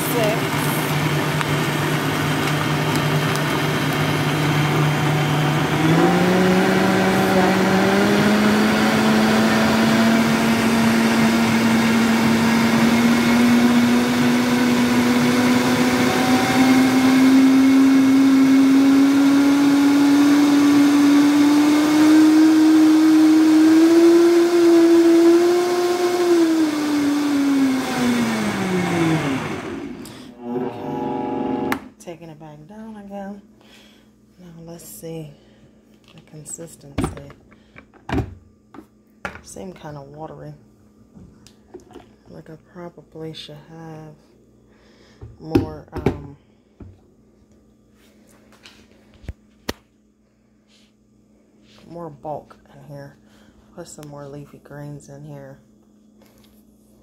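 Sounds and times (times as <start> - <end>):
blender motor running: 0.0 - 31.9.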